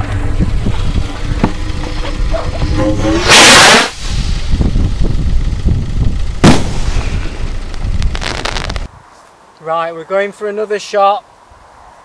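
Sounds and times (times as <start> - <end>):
firework launch whoosh: 3.1 - 4.6, 6.4 - 8.9
firework bang: 6.4 - 8.9.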